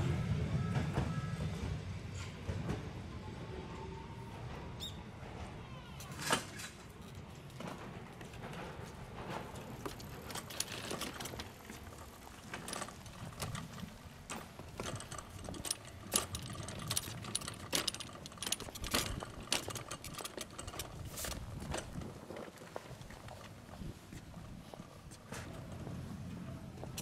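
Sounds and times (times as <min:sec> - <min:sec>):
cart wheels rumbling on pavement: 0:04.3 - 0:27.0
cart frame clicking and rattling: 0:06.1 - 0:27.0.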